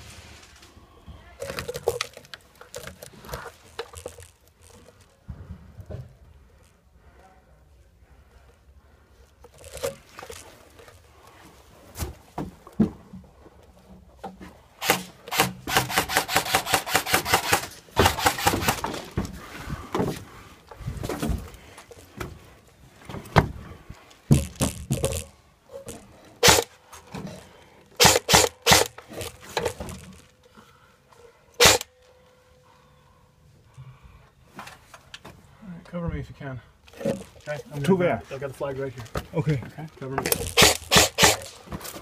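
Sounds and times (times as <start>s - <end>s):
airsoft gun burst: 14.8s - 18.9s, 26.4s - 26.7s, 28.0s - 29.0s, 31.6s - 31.9s, 40.5s - 41.6s.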